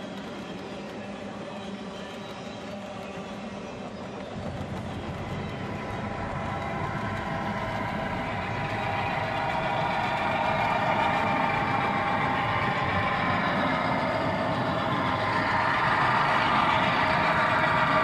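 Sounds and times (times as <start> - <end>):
model train diesel engine sound: 4.3 - 18.0.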